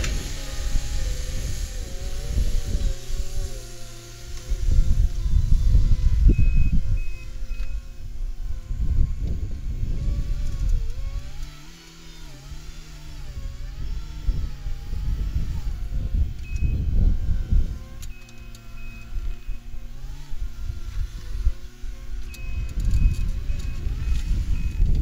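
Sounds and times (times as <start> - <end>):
low rumbling gusts: 0.0 - 11.5, 12.2 - 25.0
loader diesel engine working: 0.0 - 25.0.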